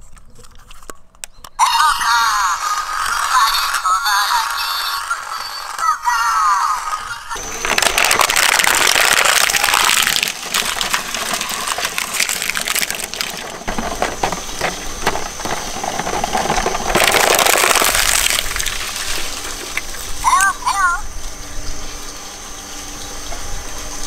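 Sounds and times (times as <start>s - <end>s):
shredder grinding plastic: 7.3s - 20.5s
plastic snapping and cracking: 7.4s - 20.0s.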